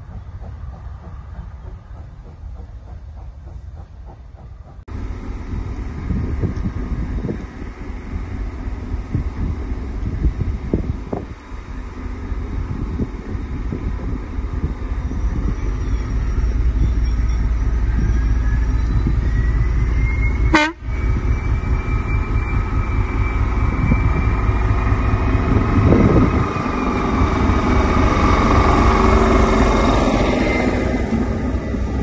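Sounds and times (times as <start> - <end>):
train rolling rumble: 0.0 - 32.0
high train squeal: 5.2 - 32.0.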